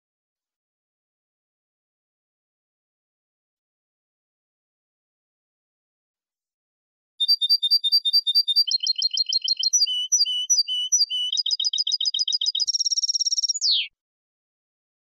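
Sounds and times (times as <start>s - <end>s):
goldfinch singing: 7.2s - 13.9s.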